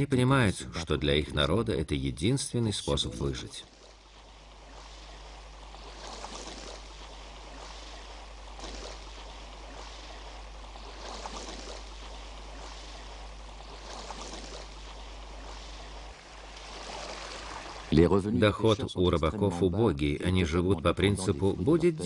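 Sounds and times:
steady low hum: 0:00.0 - 0:22.0
water lapping in swells: 0:02.5 - 0:22.0.

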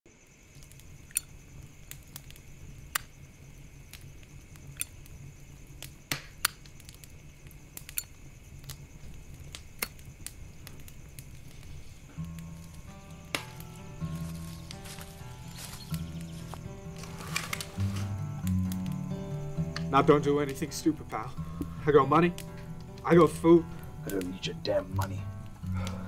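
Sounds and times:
music: 0:10.7 - 0:26.0.

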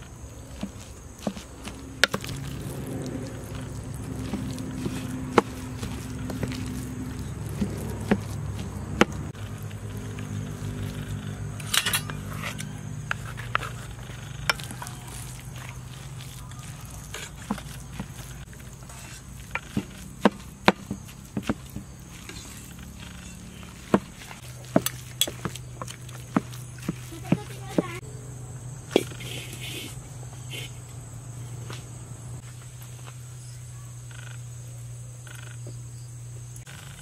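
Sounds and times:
metal spoon scraping metal bowl: 0:10.2 - 0:15.6.

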